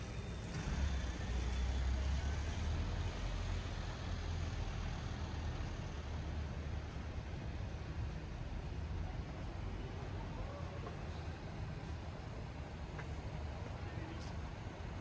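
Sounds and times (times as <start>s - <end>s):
vehicle engine rumble passing: 0.0s - 11.5s
street noise: 0.0s - 15.0s.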